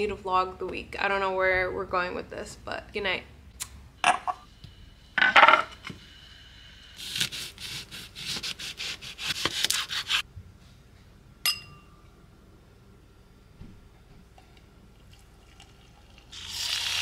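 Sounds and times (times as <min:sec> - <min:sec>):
knife sawing through lemon: 0:07.0 - 0:10.2.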